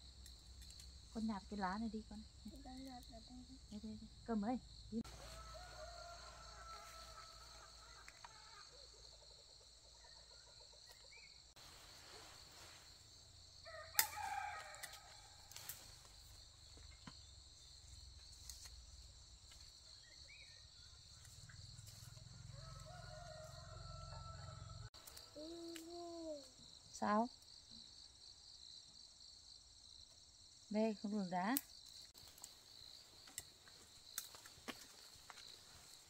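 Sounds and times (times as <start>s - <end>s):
rooster crowing: 5.0s - 8.9s, 13.6s - 15.6s, 22.0s - 24.9s.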